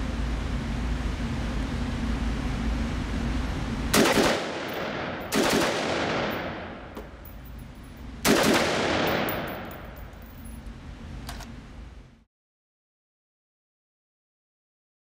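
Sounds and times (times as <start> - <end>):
rifle gunfire echoing indoors: 3.9 - 7.3, 8.2 - 10.2.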